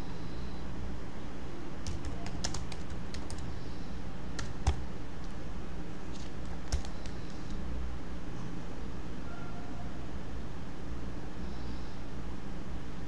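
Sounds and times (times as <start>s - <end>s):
typing on a computer keyboard: 1.8s - 3.5s, 4.4s - 5.4s, 6.1s - 7.6s.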